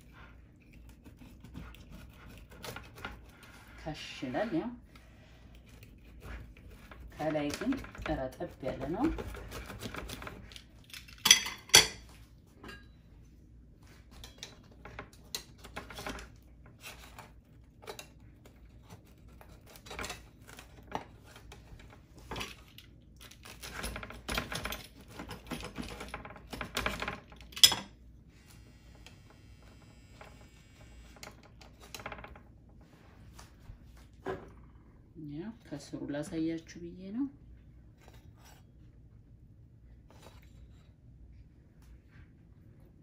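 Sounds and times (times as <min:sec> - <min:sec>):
pizza cutter cutting crust: 0:00.9 - 0:04.4, 0:05.6 - 0:10.6.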